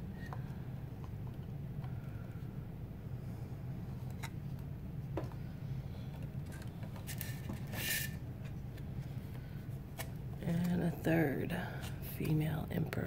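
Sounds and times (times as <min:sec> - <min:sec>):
steady low hum: 0:00.0 - 0:13.0
plastic scrape: 0:06.6 - 0:08.2.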